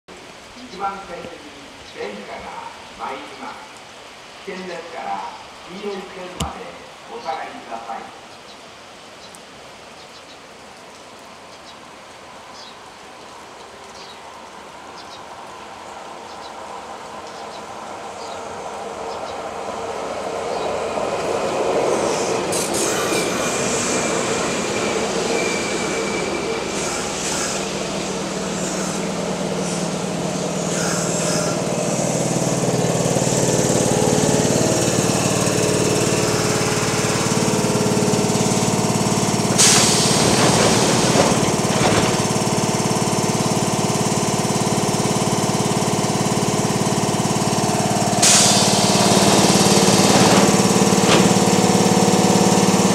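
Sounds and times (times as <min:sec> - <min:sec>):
heavy rain: 0:00.1 - 0:52.9
train equipment humming: 0:06.4 - 0:06.6, 0:17.8 - 0:52.9
train braking: 0:20.4 - 0:43.8, 0:46.2 - 0:52.9
air hiss of doors: 0:22.0 - 0:24.7, 0:26.6 - 0:32.4, 0:39.5 - 0:41.5, 0:48.2 - 0:51.8
brake and wheel squeals: 0:22.1 - 0:27.7.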